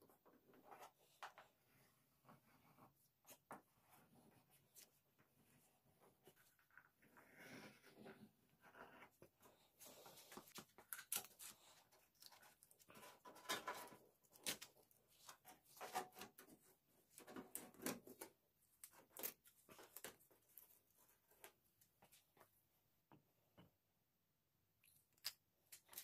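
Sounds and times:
paper and tape crinkling and tearing: 10.1 - 16.5, 17.1 - 20.8, 25.1 - 26.0.

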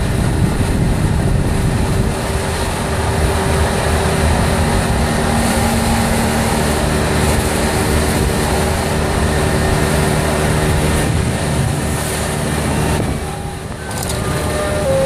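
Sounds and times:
road noise: 0.0 - 15.0
golf cart motor: 13.2 - 14.9.

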